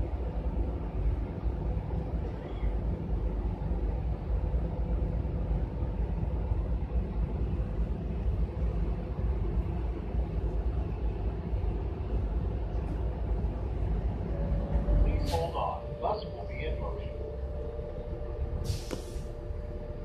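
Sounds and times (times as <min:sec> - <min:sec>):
bus engine and road rumble: 0:00.0 - 0:20.0.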